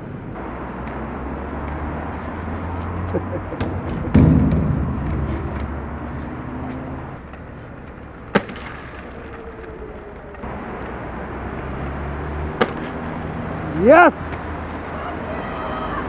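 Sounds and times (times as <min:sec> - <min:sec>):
skateboard wheels rolling on pavement: 0:00.0 - 0:16.0
skateboard clack: 0:01.6 - 0:10.9, 0:12.6 - 0:13.2.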